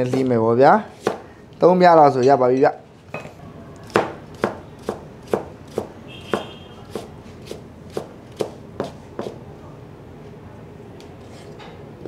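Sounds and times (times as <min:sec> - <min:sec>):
knife chopping carrot on plastic board: 0:01.0 - 0:01.2, 0:03.9 - 0:09.4.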